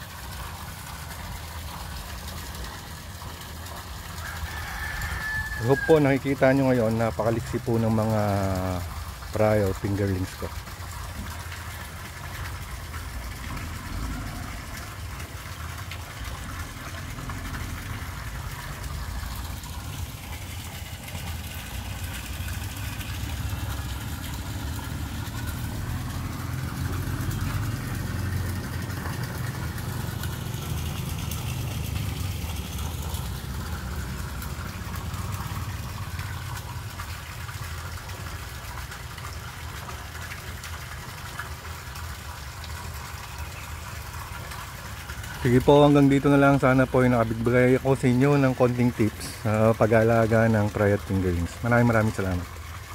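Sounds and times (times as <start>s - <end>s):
rushing water: 0.0s - 52.9s.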